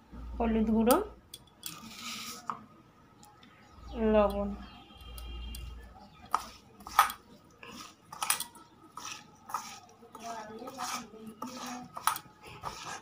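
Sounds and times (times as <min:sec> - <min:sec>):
hand squishing prawns in a bowl: 0:05.0 - 0:13.0.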